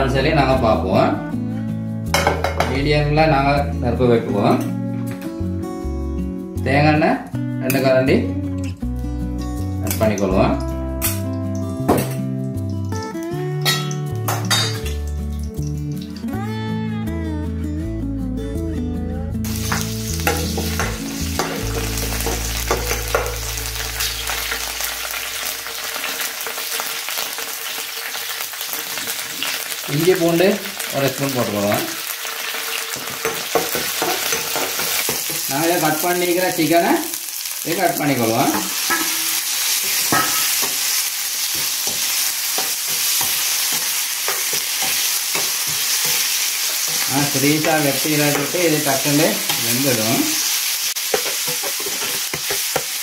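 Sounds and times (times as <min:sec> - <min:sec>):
background music: 0:00.0 - 0:26.5, 0:37.7 - 0:50.4
spoon knocking and scraping pan: 0:02.2 - 0:02.8, 0:19.5 - 0:23.6, 0:32.7 - 0:35.5, 0:38.4 - 0:49.7, 0:51.0 - 0:53.0
chillies sizzling in hot oil: 0:09.8 - 0:16.3, 0:19.4 - 0:53.0.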